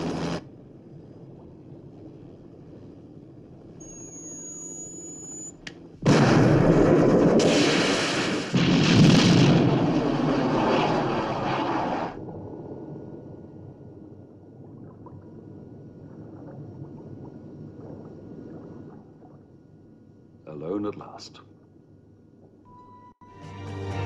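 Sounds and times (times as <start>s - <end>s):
underwater hum: 0.0s - 8.2s, 10.2s - 20.4s, 21.4s - 23.2s
thin electronic tone: 3.8s - 5.7s, 22.7s - 23.4s
loud explosion: 6.0s - 12.6s
missile rushing out of water: 6.0s - 12.6s.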